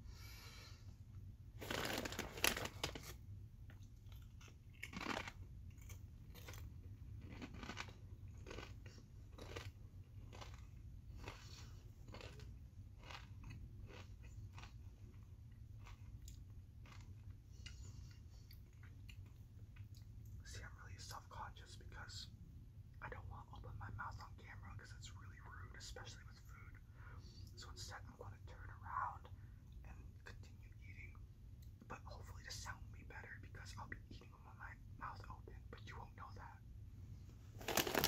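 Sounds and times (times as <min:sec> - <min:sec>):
potato chips crunching: 0:01.6 - 0:03.1, 0:04.0 - 0:14.8, 0:15.8 - 0:17.4, 0:37.6 - 0:38.0.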